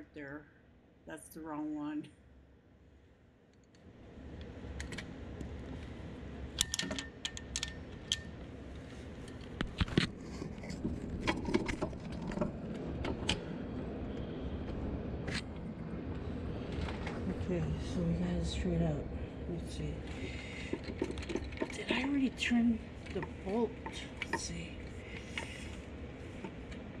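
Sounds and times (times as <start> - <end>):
low steady rumble: 0.0 - 27.0
socket wrench clicking and clinking: 6.6 - 8.3.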